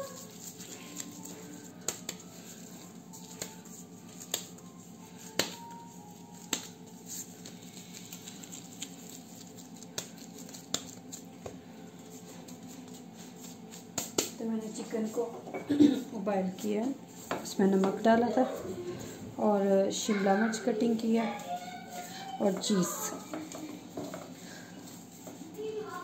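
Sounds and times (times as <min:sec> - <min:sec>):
hands patting dough: 0:00.0 - 0:15.1
plastic gloves crinkling: 0:00.0 - 0:15.1.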